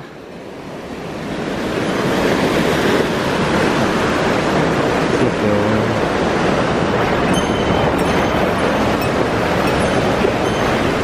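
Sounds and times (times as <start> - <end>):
stream rushing over rocks: 1.0 - 11.0.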